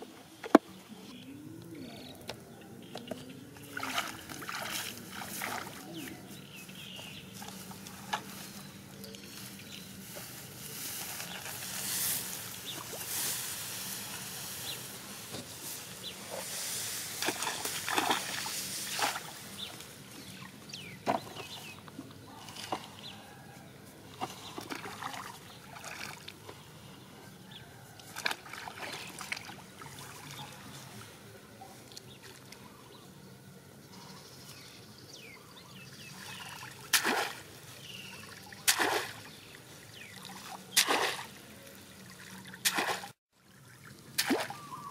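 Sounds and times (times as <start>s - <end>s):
pond water sloshing and trickling: 0.2s - 33.5s, 35.5s - 44.9s
sharp splashes: 17.2s - 19.4s, 36.2s - 43.2s, 43.8s - 44.9s.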